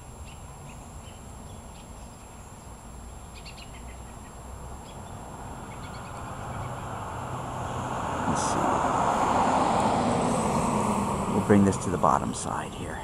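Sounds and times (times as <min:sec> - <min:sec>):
faint bird chirps: 0:00.0 - 0:07.0
low outdoor rumble: 0:00.0 - 0:13.0
wide noise: 0:00.0 - 0:13.0.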